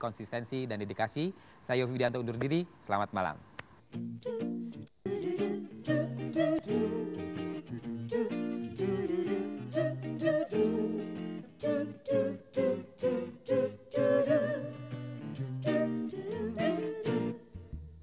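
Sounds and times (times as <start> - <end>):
pop band instrumental: 4.2 - 17.4.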